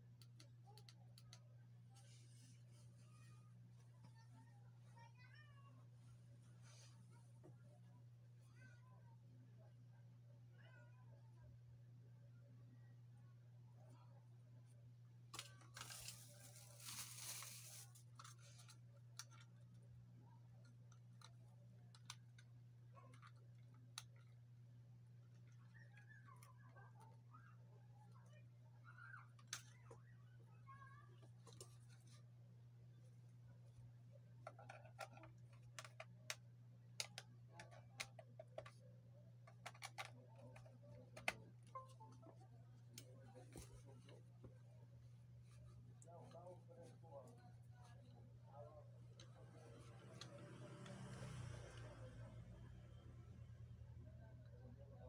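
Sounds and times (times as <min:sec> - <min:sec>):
low steady hum: 0:00.0 - 0:55.0
plastic packaging crinkling and tearing: 0:15.7 - 0:18.2.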